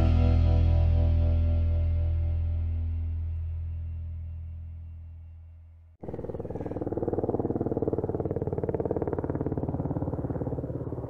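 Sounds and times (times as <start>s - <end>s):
helicopter rotor chopping: 6.0s - 11.0s.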